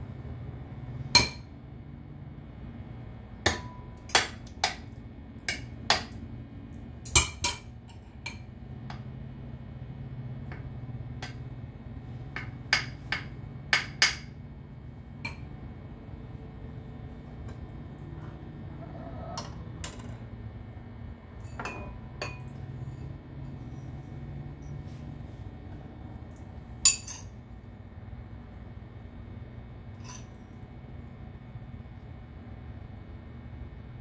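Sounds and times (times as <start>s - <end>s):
metal spoon clinking on glass dishes: 26.9s - 27.3s.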